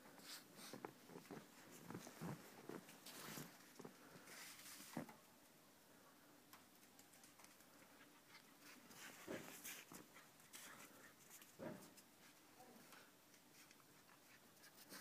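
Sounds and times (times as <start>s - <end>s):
light patter: 6.5s - 15.0s.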